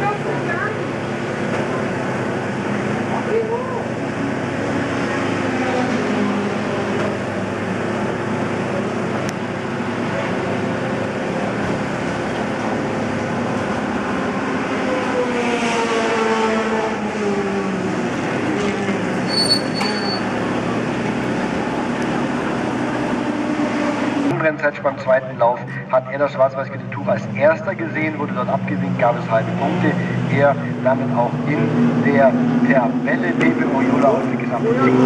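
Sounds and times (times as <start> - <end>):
racing car engines droning: 0.0 - 35.0
car passing by: 0.3 - 24.4
short high beep: 19.3 - 20.3.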